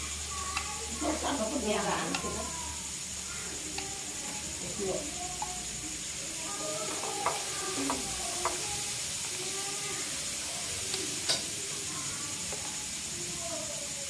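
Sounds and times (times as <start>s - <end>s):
food sizzling in a pan: 0.0s - 14.0s
sharp stirring clicks: 0.2s - 9.5s.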